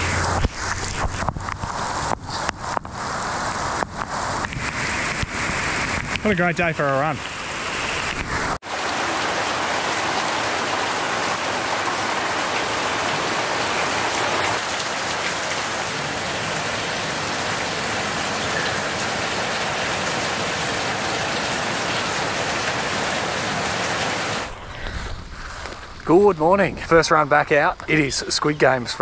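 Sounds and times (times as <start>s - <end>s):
heavy rain on a puddle: 7.2s - 24.6s.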